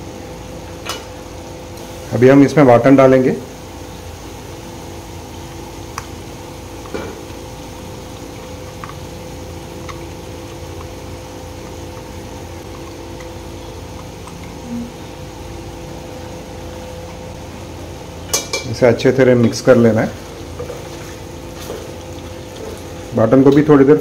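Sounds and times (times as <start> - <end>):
pot simmering in oil: 3.2 - 18.6, 20.2 - 23.5.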